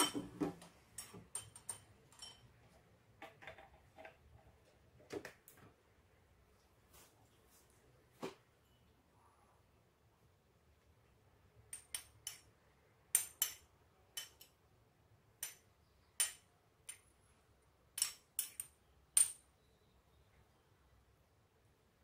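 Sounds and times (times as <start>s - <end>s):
metal utensil clinking on ceramic bowl: 0.0s - 0.4s, 1.0s - 2.6s.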